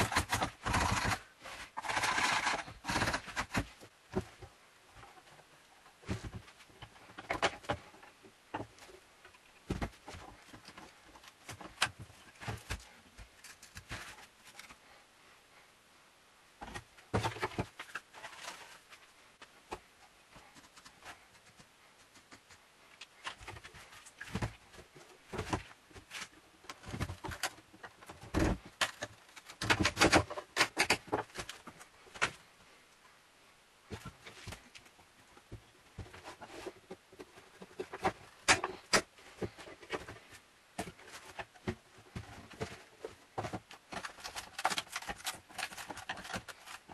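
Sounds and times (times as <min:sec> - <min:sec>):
wooden knocks and scrapes: 0:35.4 - 0:46.9.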